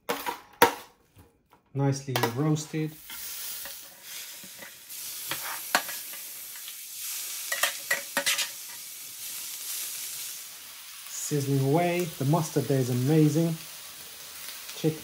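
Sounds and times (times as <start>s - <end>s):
vegetables sizzling on hot plate: 2.3s - 15.0s
metal spoon scraping tray: 5.3s - 6.0s, 7.5s - 8.6s.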